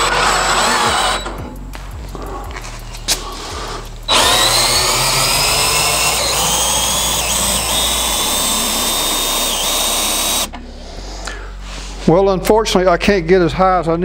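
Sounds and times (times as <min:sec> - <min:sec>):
power drill motor whine: 0:00.0 - 0:01.4, 0:04.1 - 0:10.5.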